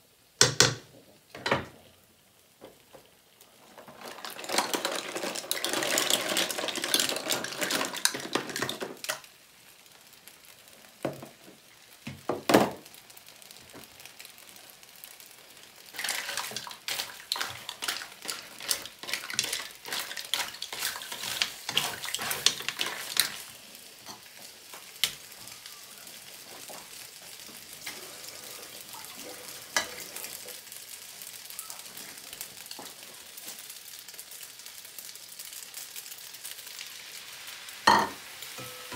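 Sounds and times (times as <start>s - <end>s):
pan sizzling: 0.0s - 38.9s
knocks: 0.4s - 1.7s
shells scraping in a pan: 3.7s - 9.2s, 15.9s - 24.3s, 27.8s - 30.6s.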